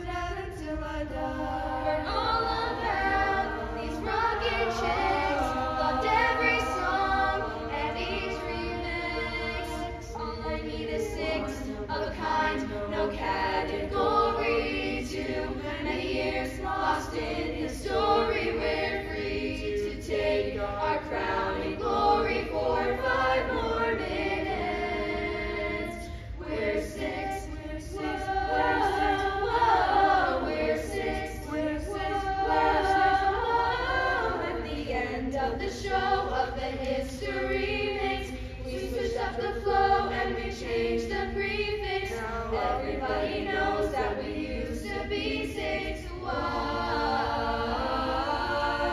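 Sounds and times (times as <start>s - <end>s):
choir singing in harmony: 0.0s - 48.9s.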